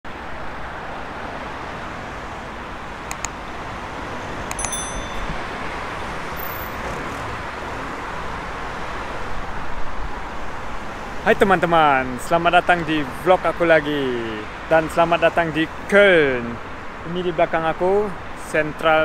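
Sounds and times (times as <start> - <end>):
road traffic noise: 0.1 - 19.0
quick clicks: 3.1 - 3.4
short high bell ding: 4.6 - 5.8.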